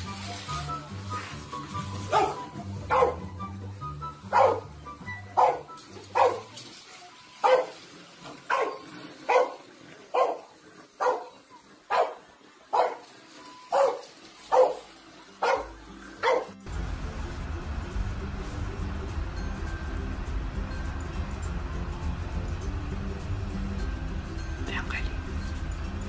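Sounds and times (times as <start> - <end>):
small dog barking: 2.1 - 3.3, 4.3 - 4.7, 5.4 - 6.5, 7.4 - 7.8, 8.5 - 13.1, 13.7 - 16.6.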